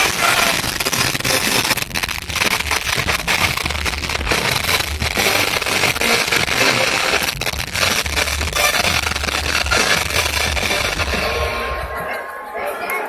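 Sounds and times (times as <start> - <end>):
arena crowd noise: 0.0 - 0.8, 9.1 - 13.0
thudding bass beat: 0.0 - 11.9
entrance music over loudspeakers: 0.0 - 12.8.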